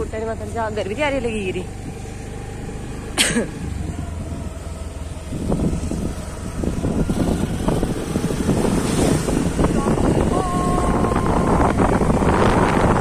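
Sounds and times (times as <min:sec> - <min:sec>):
scooter engine humming: 0:00.0 - 0:13.0
wind buffeting microphone: 0:03.6 - 0:13.0.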